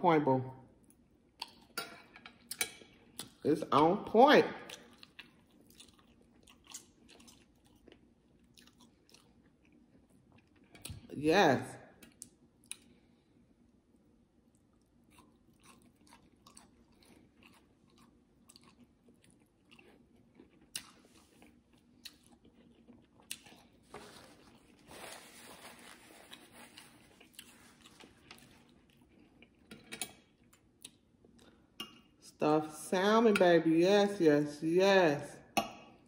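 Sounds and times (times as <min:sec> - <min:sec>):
close-miked chewing: 0:04.7 - 0:11.1, 0:14.5 - 0:32.0.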